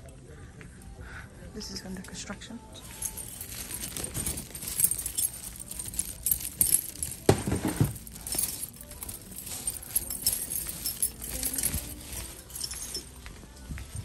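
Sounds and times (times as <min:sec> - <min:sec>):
bag jingling and rustling: 0:02.8 - 0:13.2.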